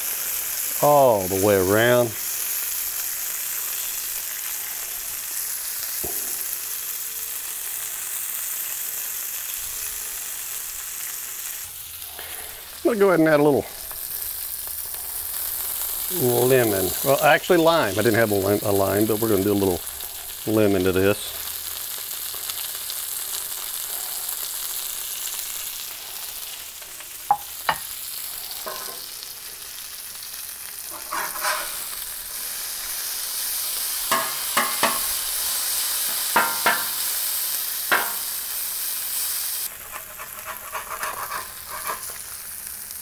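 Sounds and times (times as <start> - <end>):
food sizzling on griddle: 0.0 - 43.0
metal spatula scraping griddle: 30.8 - 32.0, 39.7 - 42.4.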